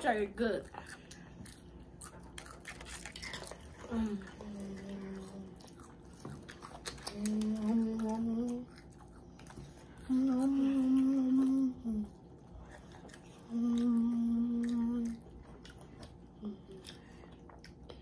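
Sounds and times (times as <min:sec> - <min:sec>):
child humming while eating: 0:07.0 - 0:08.9, 0:10.0 - 0:12.2, 0:13.4 - 0:15.3.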